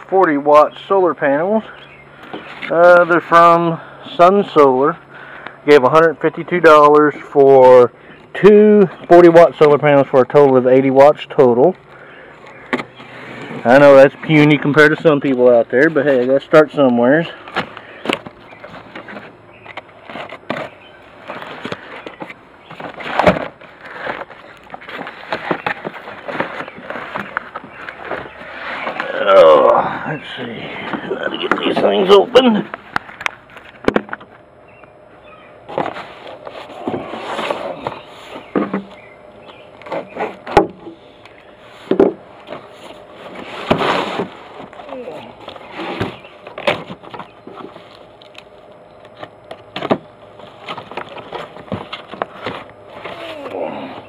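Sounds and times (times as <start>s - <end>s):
handling rustling: 12.3s - 29.3s
cardboard scraping and rustling: 17.2s - 29.4s, 30.3s - 34.3s, 35.7s - 40.9s, 41.7s - 48.3s, 49.2s - 54.0s.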